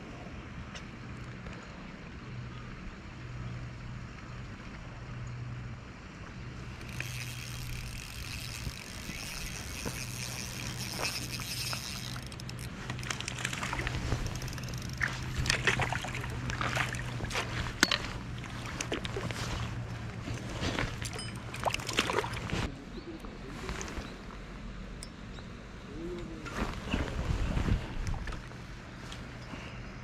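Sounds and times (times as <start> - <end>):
fish splashing in water: 12.1 - 17.6, 18.2 - 22.6.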